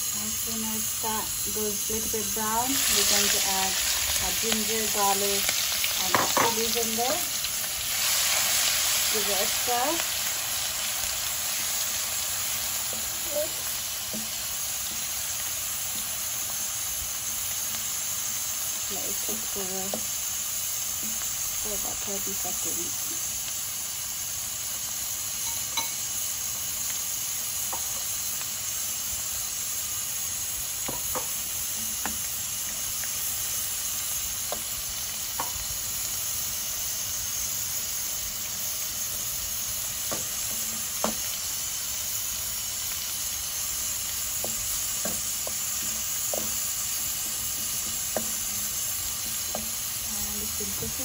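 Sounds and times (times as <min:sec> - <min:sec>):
food sizzling in hot fat: 0:00.0 - 0:51.0
wooden spatula stirring: 0:44.2 - 0:50.0.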